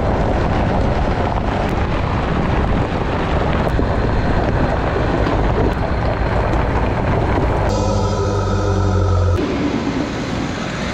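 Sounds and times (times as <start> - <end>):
wind buffeting microphone: 0.0 - 7.7
vehicle road noise rumble: 0.0 - 10.9.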